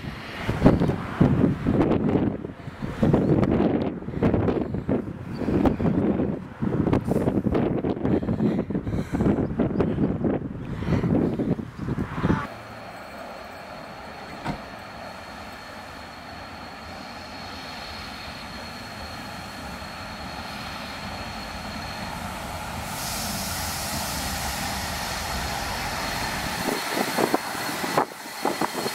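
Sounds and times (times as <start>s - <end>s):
steam locomotive running: 0.0s - 28.9s
thin high whine: 12.3s - 28.9s
steam hiss: 12.5s - 28.9s
train wheels clattering: 12.6s - 28.9s.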